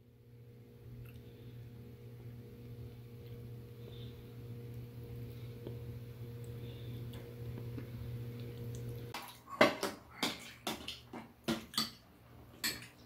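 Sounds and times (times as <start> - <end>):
steady low hum: 0.0 - 10.6
utensils clinking on bowls: 12.6 - 13.0.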